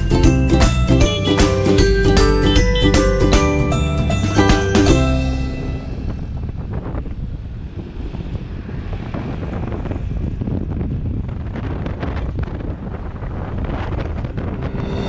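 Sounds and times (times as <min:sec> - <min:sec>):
low rumble of engine and road: 0:00.0 - 0:15.0
wind buffeting microphone: 0:05.4 - 0:15.0.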